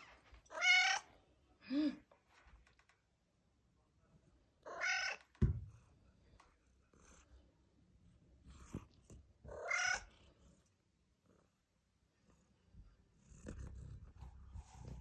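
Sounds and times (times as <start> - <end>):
cat meowing: 0.5 - 1.1, 4.7 - 5.3, 9.5 - 10.1.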